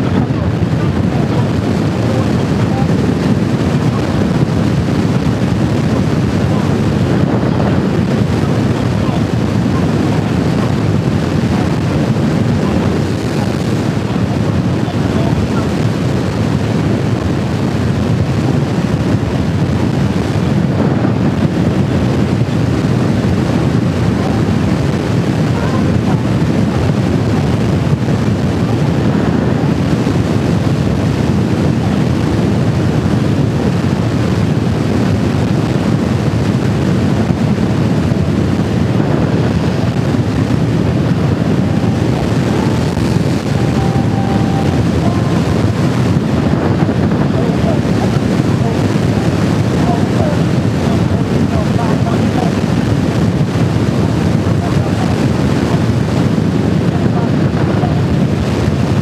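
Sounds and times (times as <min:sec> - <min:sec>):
road noise: 0:00.0 - 0:59.0
wind rush on microphone: 0:00.0 - 0:59.0
motorcycle engine: 0:39.6 - 0:51.0.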